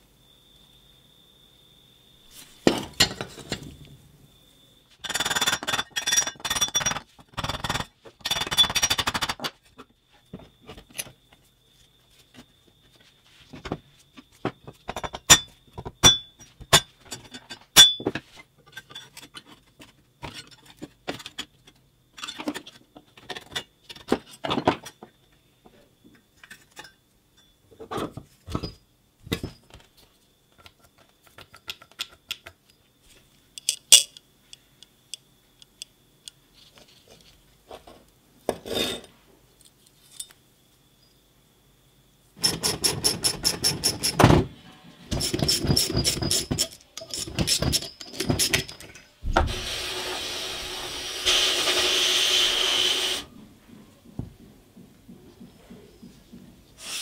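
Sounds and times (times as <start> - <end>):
metal motor parts clinking: 33.6 - 34.2, 45.1 - 49.1.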